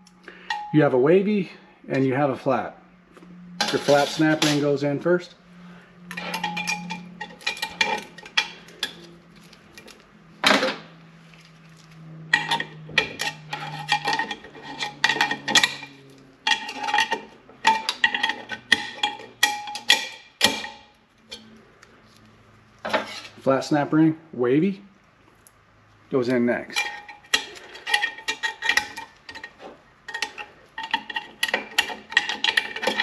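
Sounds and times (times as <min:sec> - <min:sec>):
metal ring ringing tones: 0:00.0 - 0:01.1, 0:03.3 - 0:09.3, 0:12.1 - 0:21.6
metallic clicks and scrapes: 0:03.3 - 0:04.8, 0:05.6 - 0:23.5, 0:26.7 - 0:33.0.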